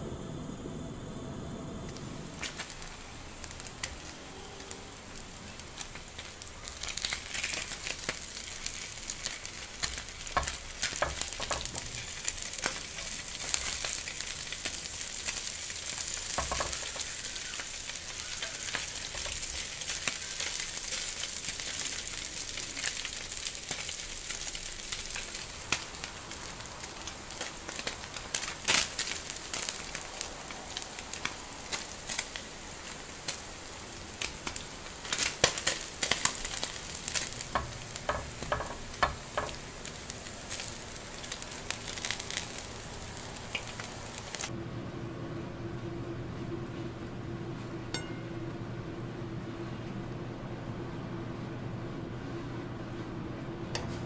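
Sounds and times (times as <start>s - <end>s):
meat sizzling in a frying pan: 2.3s - 44.5s.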